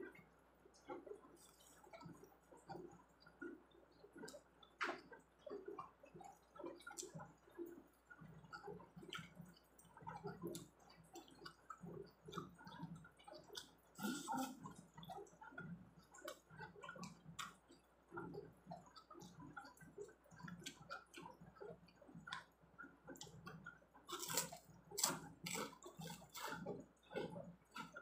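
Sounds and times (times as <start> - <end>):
person chewing crunchy crackers: 5.4 - 15.3, 16.0 - 21.4, 22.2 - 28.0
wet mouth sounds: 12.4 - 15.2.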